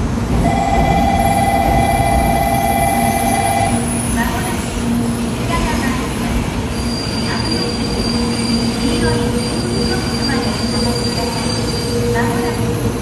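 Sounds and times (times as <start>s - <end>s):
train electrical hum: 0.0s - 13.0s
held steady tones: 0.4s - 4.0s.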